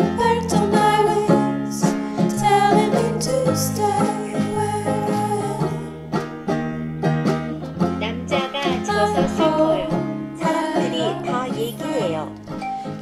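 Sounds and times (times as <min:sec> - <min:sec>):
plucked string instrument melody: 0:00.0 - 0:13.0.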